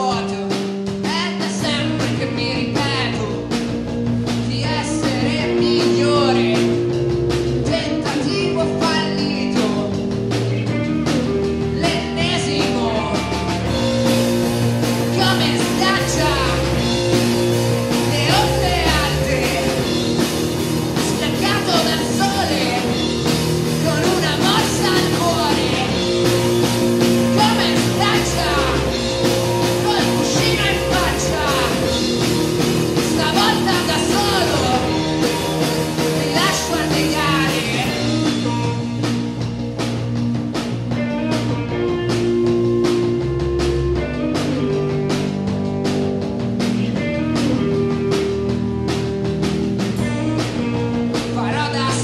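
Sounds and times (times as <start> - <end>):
bass guitar: 0.0 - 52.0
drum kit: 0.0 - 52.0
electric guitar: 0.0 - 52.0
person singing: 15.0 - 17.2, 17.9 - 20.2, 21.0 - 23.1, 23.7 - 26.4, 27.1 - 38.8.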